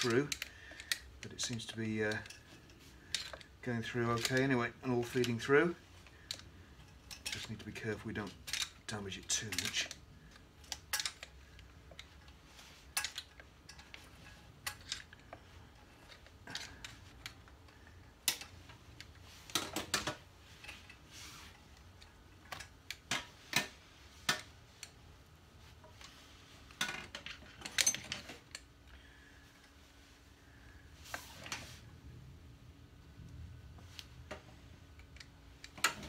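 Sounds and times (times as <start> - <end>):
light metallic clicks and clinks: 6.2 - 21.0, 26.8 - 28.7.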